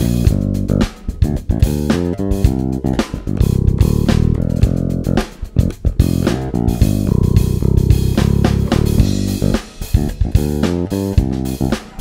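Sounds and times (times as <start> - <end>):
electric bass plucked notes: 0.0 - 12.0.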